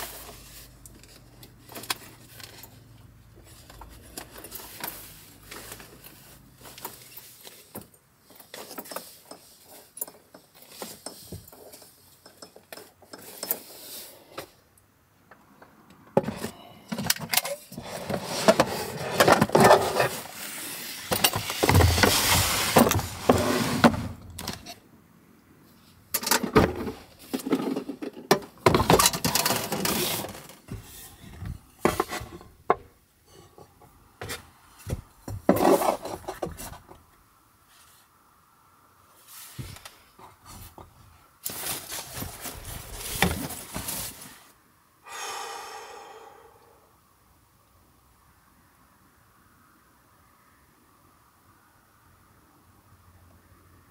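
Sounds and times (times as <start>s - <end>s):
rustling and scraping: 0.0s - 14.6s, 16.1s - 24.8s, 25.6s - 38.2s, 39.1s - 44.6s.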